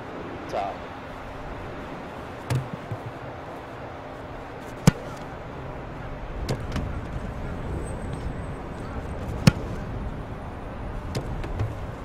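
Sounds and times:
outdoor background noise: 0.0 - 12.0
football kick: 2.5 - 3.2, 4.8 - 5.2
soft thud: 2.5 - 3.2.

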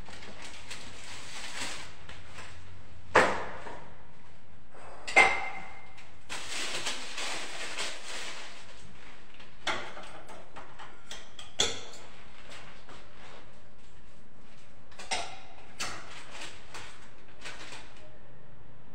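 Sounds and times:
scraping and rustling: 0.0 - 2.5, 6.3 - 9.3.

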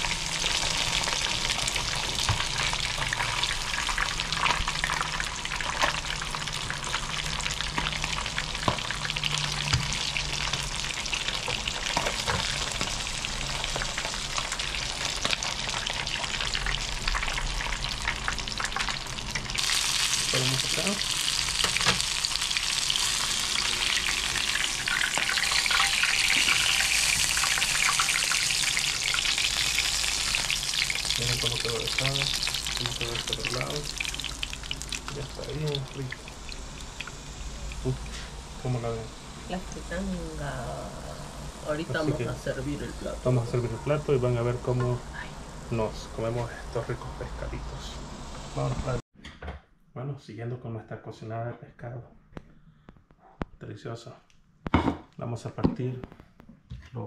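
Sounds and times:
fish frying in hot oil: 0.0 - 40.8.

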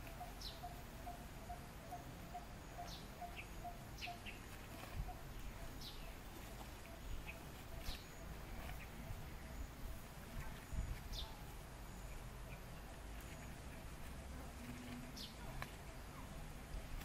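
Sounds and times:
bird chirps: 0.0 - 9.8, 10.7 - 13.9.

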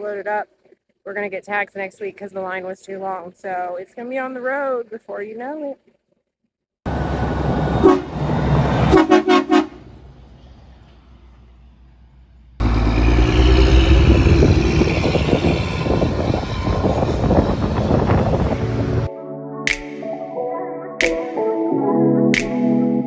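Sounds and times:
road noise: 6.9 - 19.1
truck engine driving past: 6.9 - 19.1
truck horn toots: 7.8 - 8.2, 8.8 - 9.9.

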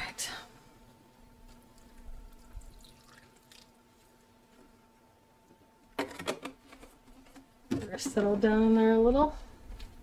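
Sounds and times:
water dripping and trickling: 1.6 - 3.8.

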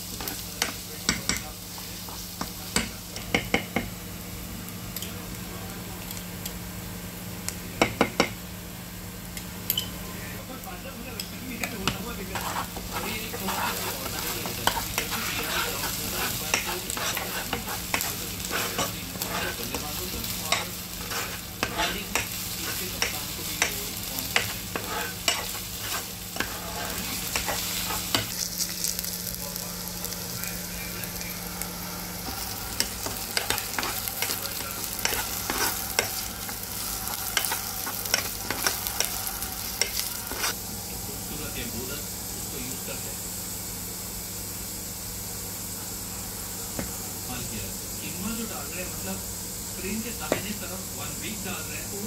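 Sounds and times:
onions sizzling in hot oil: 0.0 - 52.0
plastic spatula scraping a pan: 11.9 - 19.9, 20.6 - 22.0, 24.4 - 28.2.

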